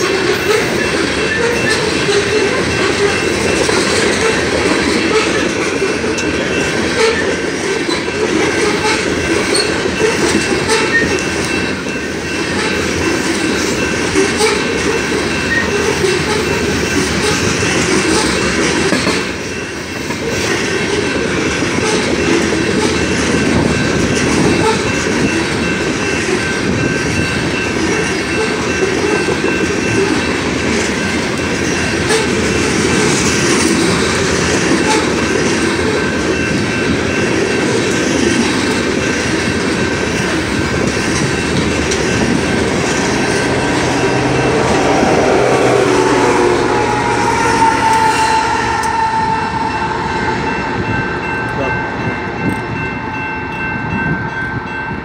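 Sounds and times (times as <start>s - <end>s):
clickety-clack over rail joints: 0.0s - 49.6s
train wheels rumbling on rails: 0.0s - 55.0s.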